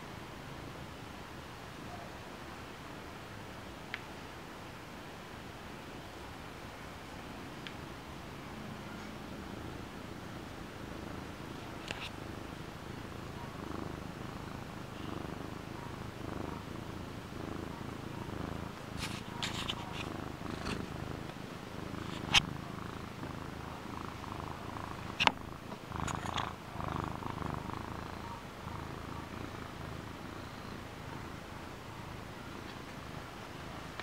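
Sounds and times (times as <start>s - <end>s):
cat purring: 8.5s - 34.0s.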